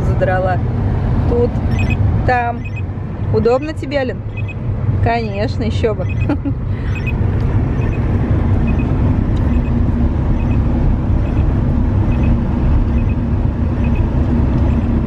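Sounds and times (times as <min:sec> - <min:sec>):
car driving rumble from inside: 0:00.0 - 0:15.0.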